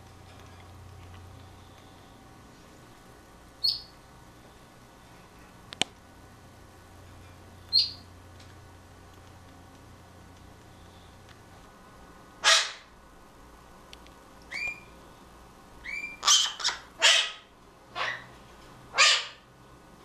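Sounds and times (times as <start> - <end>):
parrots squawking: 12.4 - 12.9, 14.5 - 14.9, 15.8 - 19.5
short whistled chirps: 14.5 - 14.9.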